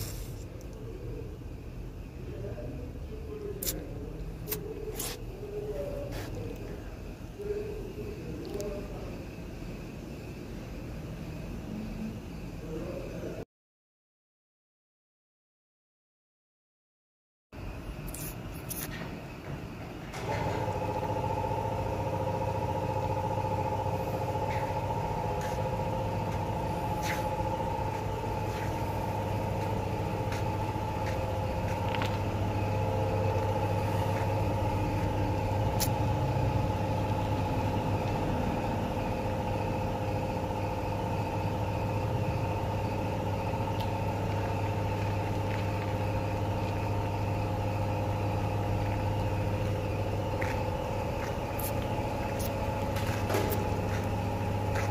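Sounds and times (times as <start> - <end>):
car engine idling: 19.2 - 54.9.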